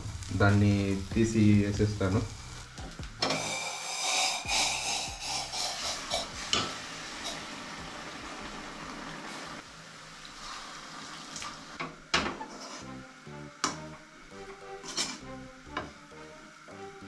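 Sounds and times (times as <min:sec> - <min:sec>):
soft background music: 0:00.0 - 0:09.0, 0:12.2 - 0:17.0
spatula scraping an iron pan: 0:12.3 - 0:12.9, 0:14.8 - 0:15.2.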